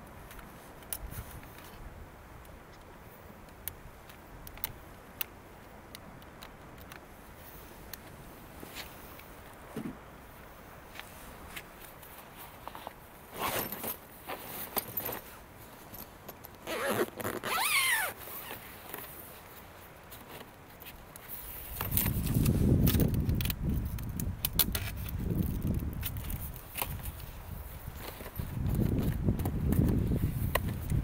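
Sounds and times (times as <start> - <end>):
small handling clicks: 2.4 - 7.1
zipper pulled: 13.3 - 15.2, 16.6 - 18.6.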